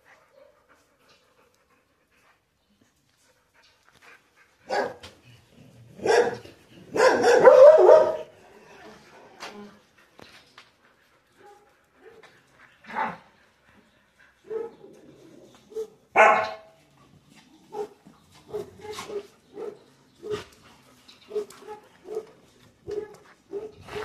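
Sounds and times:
dogs barking: 4.7 - 5.0, 6.0 - 8.3, 15.7 - 16.8, 17.7 - 20.5, 21.3 - 24.0.

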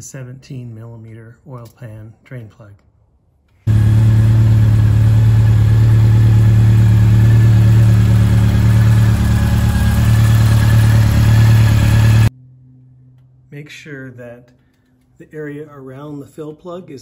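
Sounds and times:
motorcycle engine idling: 3.7 - 12.3.

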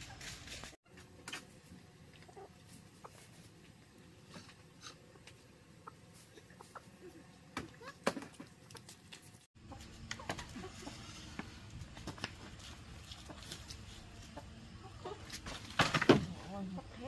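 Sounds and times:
chickens clucking: 2.1 - 3.5, 4.5 - 9.0, 9.6 - 17.0.

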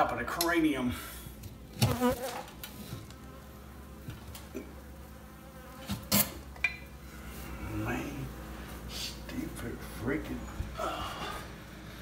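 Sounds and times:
honey bees buzzing: 1.6 - 10.8.

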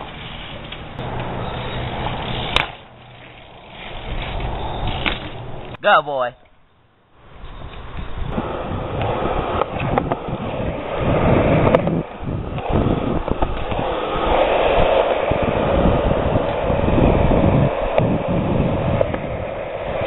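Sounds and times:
wind buffeting microphone: 7.3 - 20.0.

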